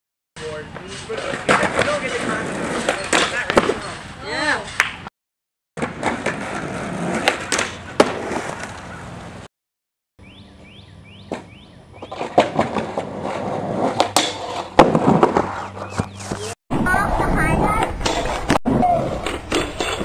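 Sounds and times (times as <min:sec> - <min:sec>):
skateboard wheels rolling: 0:00.7 - 0:04.1, 0:05.8 - 0:09.3, 0:11.2 - 0:20.0.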